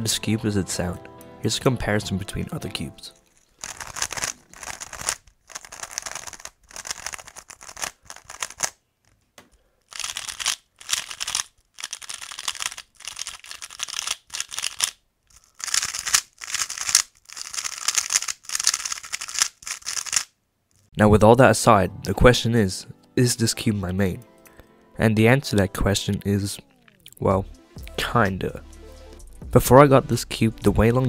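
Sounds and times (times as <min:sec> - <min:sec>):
plastic puzzle cube clicking: 0:03.2 - 0:20.8.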